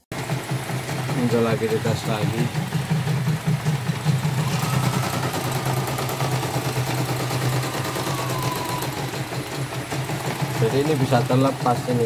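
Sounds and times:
embroidery machine motor hum: 0.2s - 12.0s
faint whine dropping in pitch: 4.3s - 9.7s.

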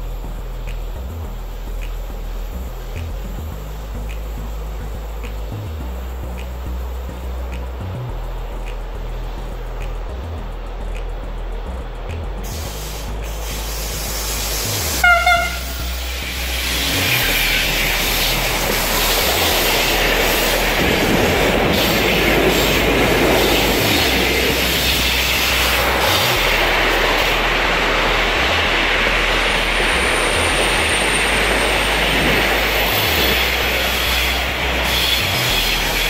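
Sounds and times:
train wheels rushing on rails: 0.0s - 36.0s
train horn blast: 15.0s - 16.1s.

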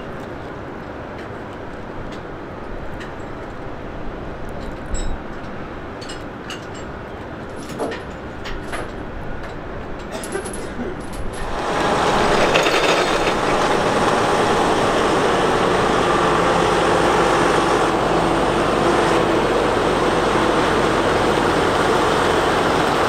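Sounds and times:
diesel truck engine droning: 11.4s - 23.0s.

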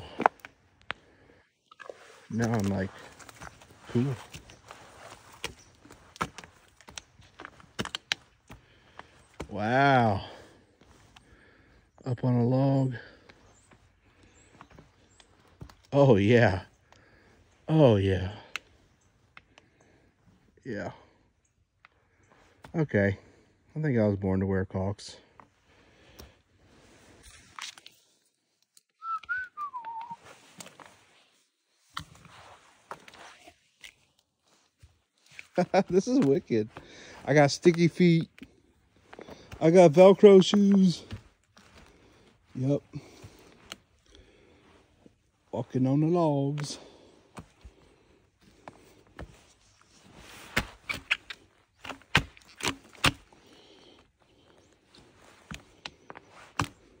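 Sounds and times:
spiked boots crunching on logs: 0.0s - 11.8s, 13.0s - 17.7s, 29.0s - 57.0s
boots crunching on snowy logs: 1.8s - 9.8s, 39.0s - 44.6s
person whistling: 29.0s - 30.2s.

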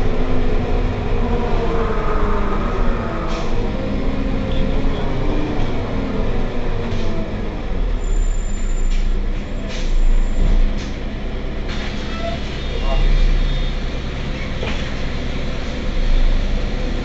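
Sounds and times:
bus diesel engine running: 0.0s - 17.0s.

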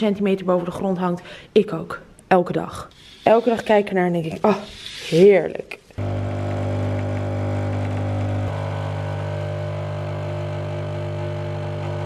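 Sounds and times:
coffee machine pump humming: 6.0s - 12.0s.

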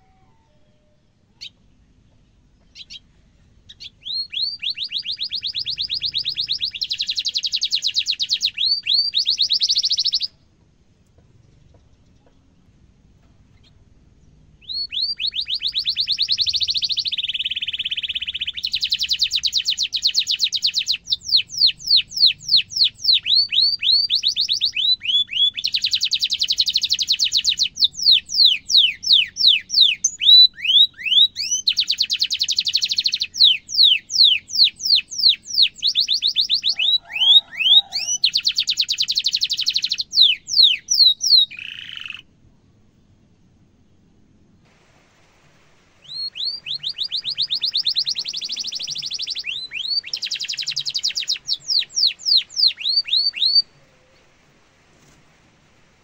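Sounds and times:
canary singing trills: 0.0s - 1.8s, 2.6s - 10.4s, 13.5s - 42.3s, 46.0s - 54.3s.

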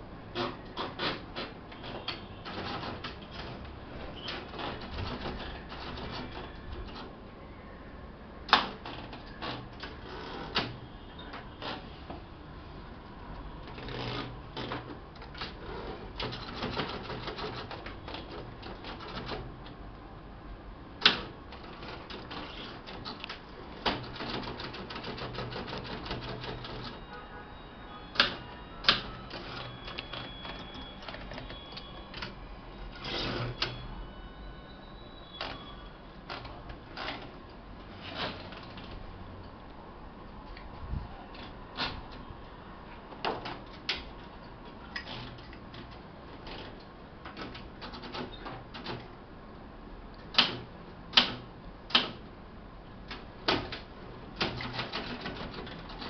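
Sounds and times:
manual typewriter typing: 0.3s - 7.1s, 8.5s - 11.9s, 13.6s - 19.7s, 21.0s - 27.1s, 28.1s - 33.9s, 36.2s - 37.4s, 41.3s - 42.2s, 45.0s - 49.2s, 50.2s - 52.3s, 53.0s - 56.0s.

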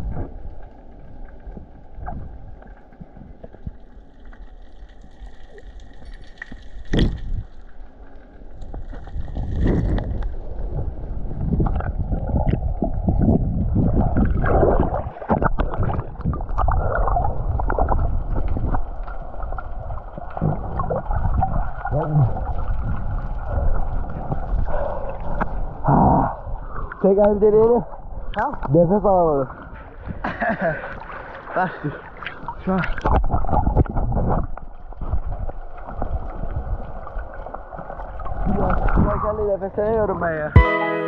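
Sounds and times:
muffled water sloshing: 0.0s - 40.0s.

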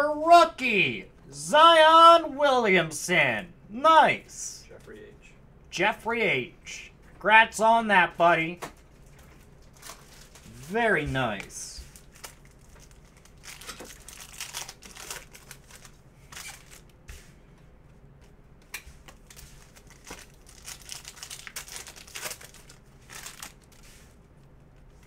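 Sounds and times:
foil wrapper crinkling: 8.9s - 10.8s, 11.4s - 17.0s, 19.0s - 25.0s.

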